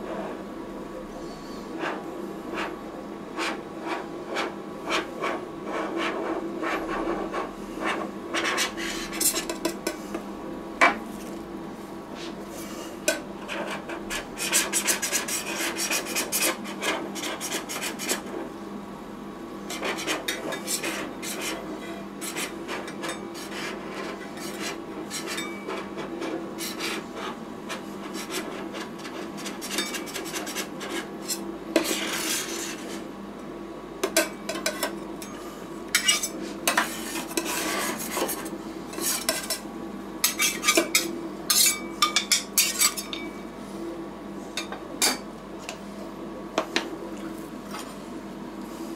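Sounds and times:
steady low hum: 0:00.0 - 0:48.9
spatulas scraping ice cream on metal: 0:03.4 - 0:09.7, 0:19.7 - 0:33.1, 0:35.9 - 0:39.6, 0:40.2 - 0:41.8.

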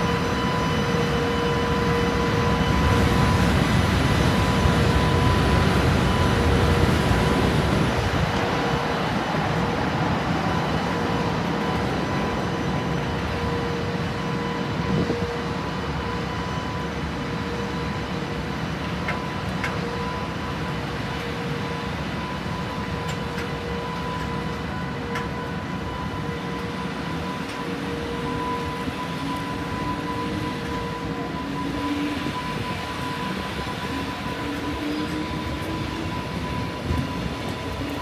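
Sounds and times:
train wheels rumbling on track: 0:17.2 - 0:38.0.

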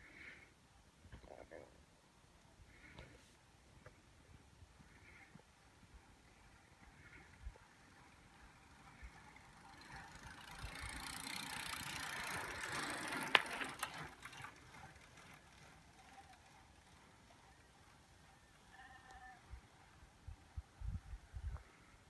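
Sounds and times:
bicycle tyre and drivetrain hiss: 0:02.6 - 0:22.0.

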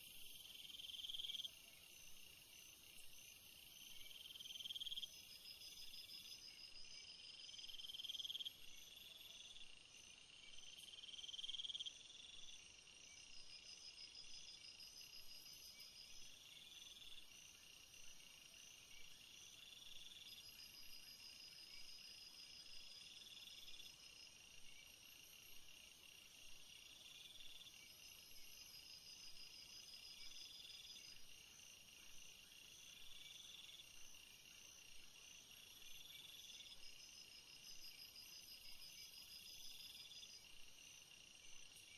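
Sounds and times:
insects trilling: 0:00.0 - 0:18.4
high insect hum: 0:00.0 - 0:41.9.

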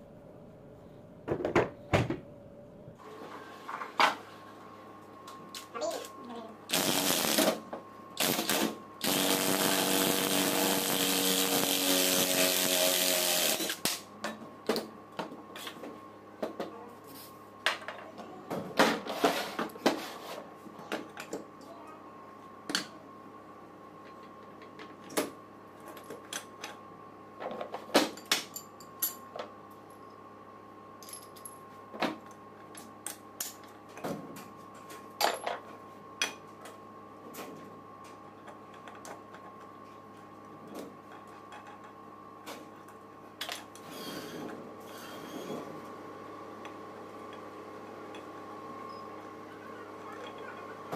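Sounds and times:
cordless drill running: 0:08.2 - 0:13.8.

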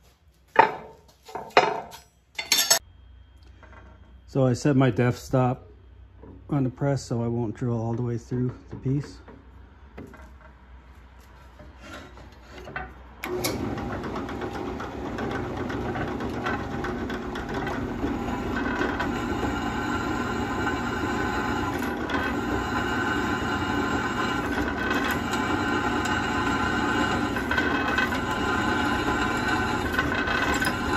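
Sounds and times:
drill bit cutting into metal: 0:17.8 - 0:30.9.

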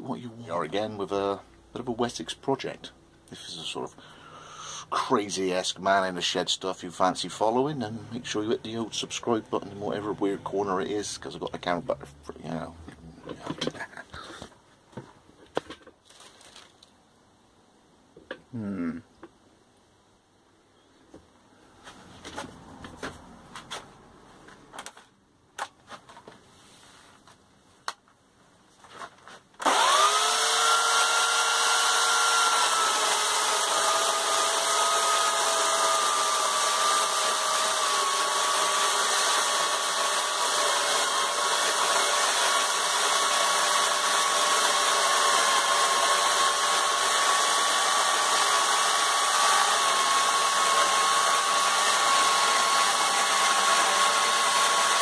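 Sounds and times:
power tool motor running: 0:29.6 - 0:55.0.

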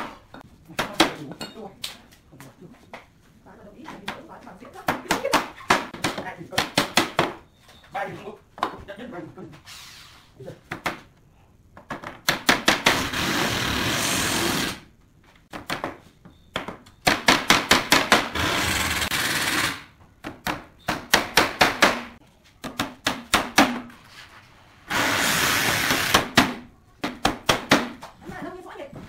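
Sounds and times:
hammer striking nails: 0:05.3 - 0:07.4, 0:11.9 - 0:13.3, 0:15.5 - 0:23.9.

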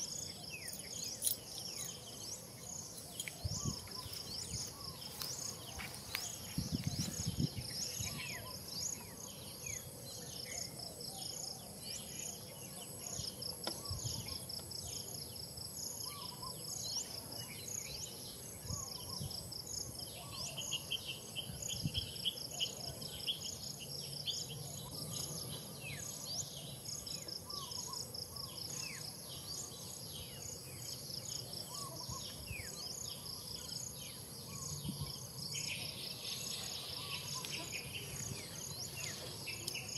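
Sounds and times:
insect high-pitched drone: 0:00.0 - 0:39.9
low insect buzzing call: 0:00.0 - 0:39.9
pulsing insect chirp: 0:00.0 - 0:39.9.

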